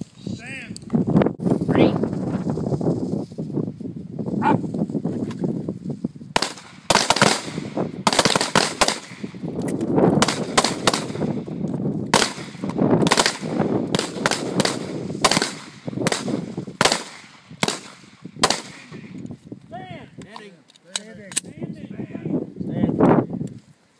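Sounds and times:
pistol shots: 6.4s - 9.4s, 10.2s - 11.4s, 12.1s - 19.0s.

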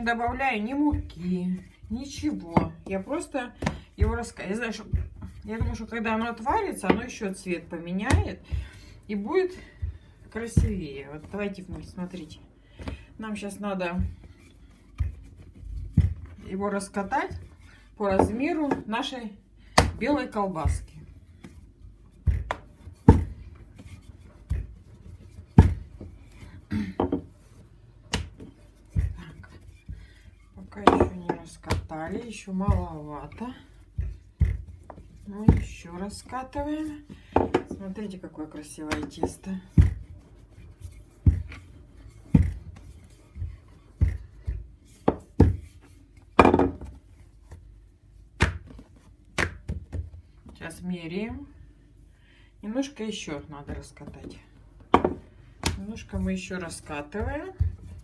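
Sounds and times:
rolling pin thuds: 0.0s - 14.3s, 14.9s - 19.0s, 19.7s - 26.2s, 26.9s - 47.6s, 48.3s - 50.6s, 53.4s - 58.0s
rolling pin rolling dough: 0.0s - 51.5s, 53.2s - 58.0s
rolling pin knocking counter: 30.8s - 31.9s, 46.4s - 46.9s.

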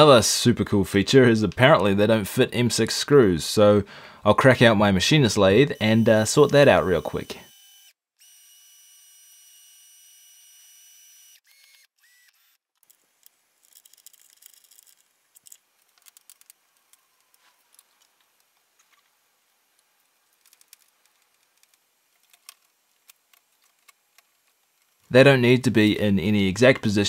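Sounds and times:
cordless drill whining: 5.7s - 13.4s
metal parts clicking: 12.8s - 19.0s.

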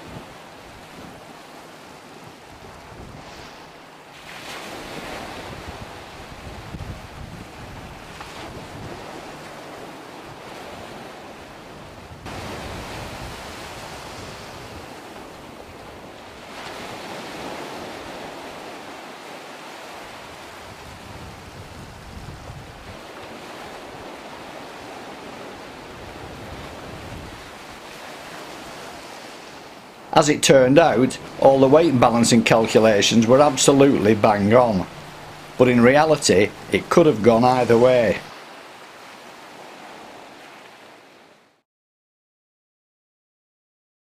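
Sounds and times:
choppy water: 0.0s - 41.6s
wind buffeting microphone: 2.5s - 3.7s, 4.9s - 11.0s, 11.7s - 16.1s, 20.1s - 27.9s.

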